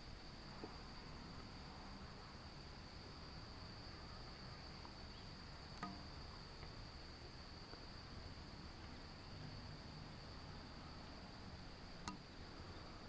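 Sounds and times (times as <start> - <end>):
sharp click: 12.0 - 12.2.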